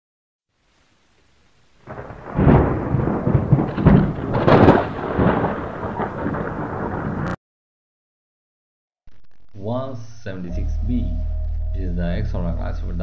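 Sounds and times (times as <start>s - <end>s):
thunder rumbling with sharp cracks: 1.8s - 7.4s.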